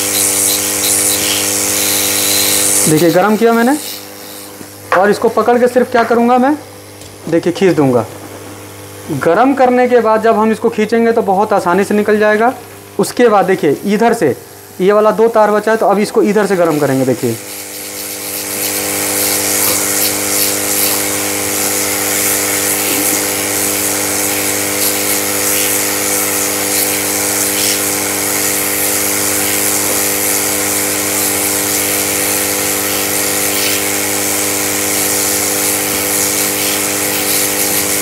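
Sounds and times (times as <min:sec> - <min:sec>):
hot air gun blowing: 0:00.0 - 0:05.0, 0:16.7 - 0:38.0.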